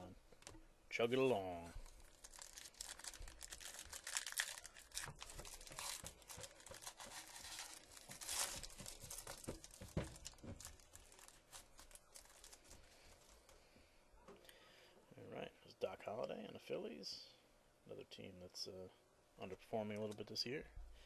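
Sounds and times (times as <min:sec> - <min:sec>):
foil wrapper tearing and crinkling: 0:01.8 - 0:13.4.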